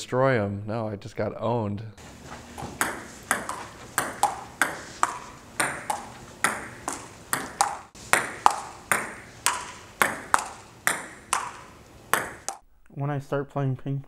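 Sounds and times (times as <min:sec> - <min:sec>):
table tennis ball clicking: 0:02.6 - 0:12.6.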